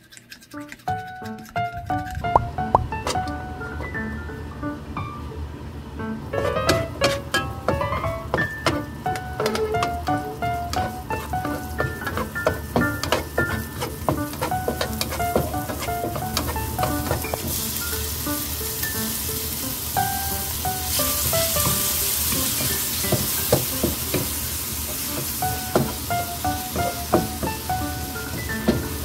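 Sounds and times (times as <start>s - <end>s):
spatula scraping and tapping pan: 6.4s - 17.6s, 21.6s - 29.0s
onions sizzling in oil: 8.2s - 29.0s.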